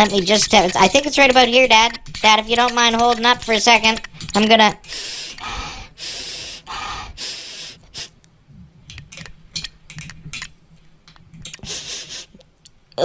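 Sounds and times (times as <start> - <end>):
small clicks: 0.0 - 4.6
dog sniffing: 11.6 - 12.4.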